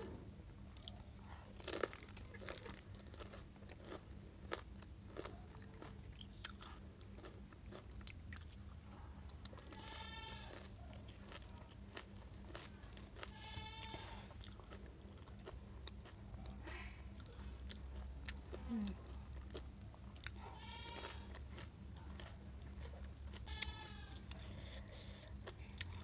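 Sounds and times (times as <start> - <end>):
crunching and chewing crisp food: 0.0 - 26.0
animal bleating: 9.6 - 10.7, 13.2 - 14.3, 20.4 - 21.3, 23.4 - 24.3.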